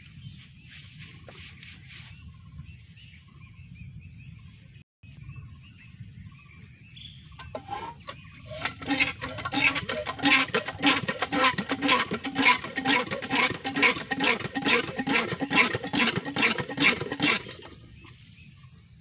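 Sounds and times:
faint bird chirps: 0.0s - 8.5s.

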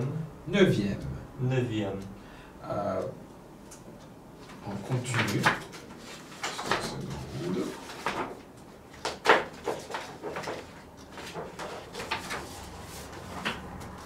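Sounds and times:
flip chart pages rustling: 4.4s - 14.0s.

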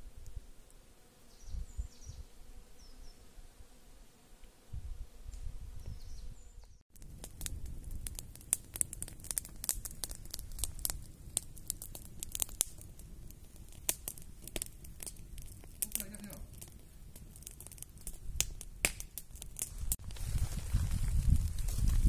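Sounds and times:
wood fire crackling and popping: 6.9s - 22.0s.

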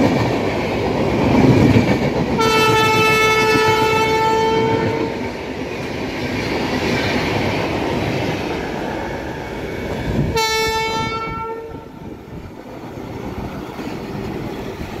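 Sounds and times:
train passing with clickety-clack: 0.0s - 15.0s
train horn: 2.4s - 5.2s, 10.3s - 12.0s.

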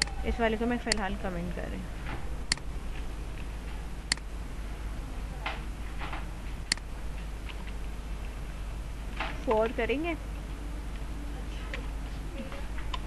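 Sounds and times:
computer clicks: 0.0s - 0.2s, 2.4s - 2.7s, 4.1s - 4.3s, 6.7s - 6.9s
low hum: 0.0s - 13.0s.

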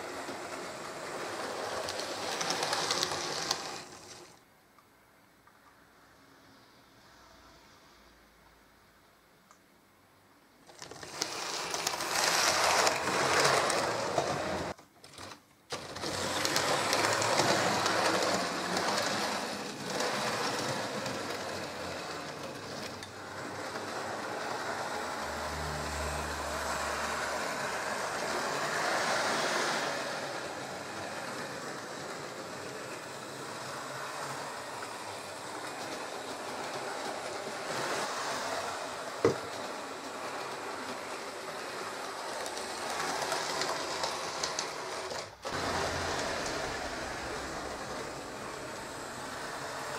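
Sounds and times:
model trains rattling on track: 0.0s - 4.2s, 15.7s - 49.9s.

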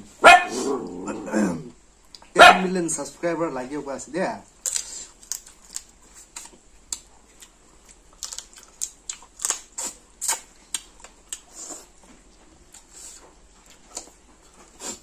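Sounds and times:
chewing and lip smacks: 4.6s - 15.0s.

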